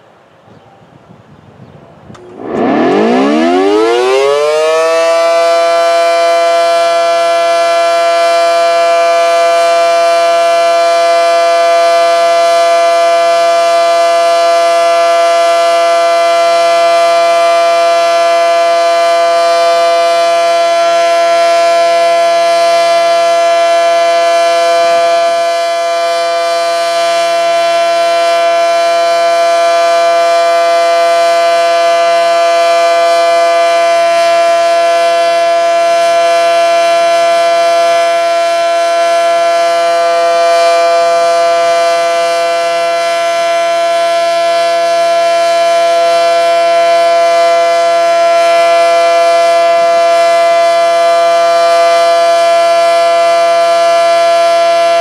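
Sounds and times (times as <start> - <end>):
warning siren steady tone: 2.1 - 55.0.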